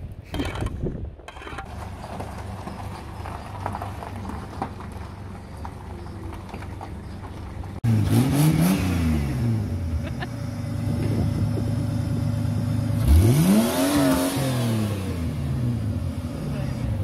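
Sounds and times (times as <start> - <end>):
race car engine revving: 7.8 - 10.0, 10.8 - 17.0.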